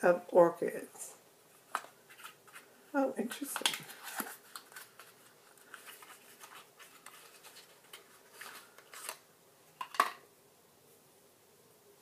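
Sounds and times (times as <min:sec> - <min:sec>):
packaging rustling and scratching: 0:01.6 - 0:02.7, 0:03.3 - 0:09.2.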